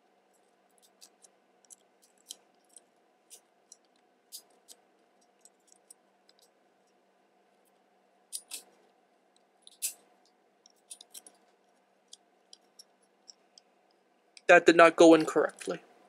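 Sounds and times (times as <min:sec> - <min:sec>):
pistol parts clicking and scraping: 0:00.7 - 0:07.0, 0:08.3 - 0:14.0.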